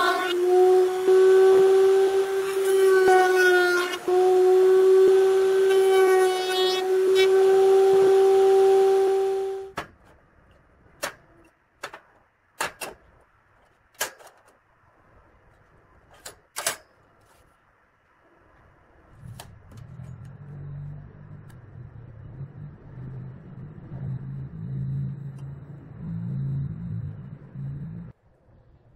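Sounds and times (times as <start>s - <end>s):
router whining: 0.0s - 9.7s
low hum: 18.2s - 28.9s.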